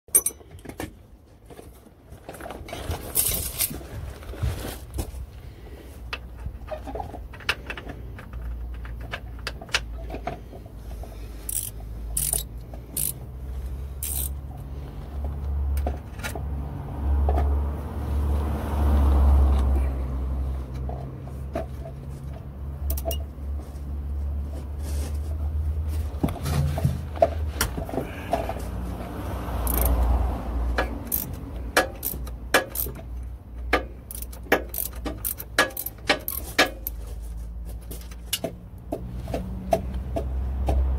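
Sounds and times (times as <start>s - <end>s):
metal tools clinking and scraping: 0.1s - 0.9s, 2.4s - 3.8s, 11.4s - 13.2s, 14.0s - 14.4s, 22.9s - 23.3s, 30.8s - 38.6s.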